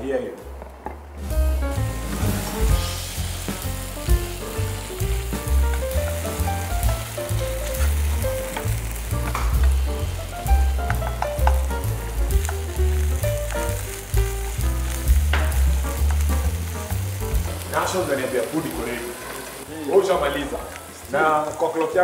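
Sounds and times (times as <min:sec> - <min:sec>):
vegetables sizzling in a frying pan: 0:01.2 - 0:22.0
music with heavy bass line: 0:01.3 - 0:17.7
spatula tapping a pan: 0:10.8 - 0:11.8.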